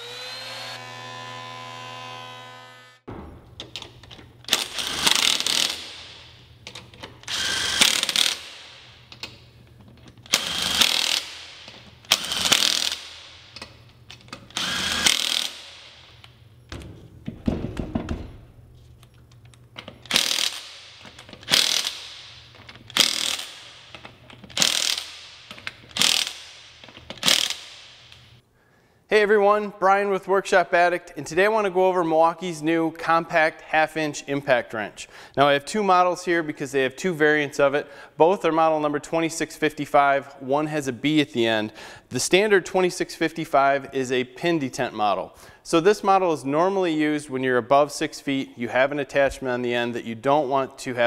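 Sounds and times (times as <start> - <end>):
impact wrench hammering on lug nuts: 4.5 - 6.4, 7.2 - 9.2, 10.3 - 13.8, 14.4 - 16.2, 19.9 - 28.2.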